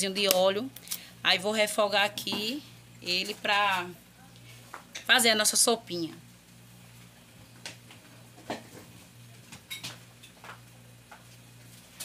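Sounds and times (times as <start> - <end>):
hot oil popping and crackling: 6.4 - 12.0.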